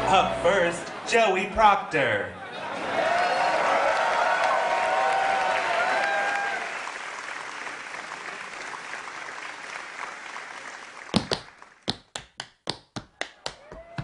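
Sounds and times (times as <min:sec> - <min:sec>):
audience applause: 0:02.7 - 0:11.9.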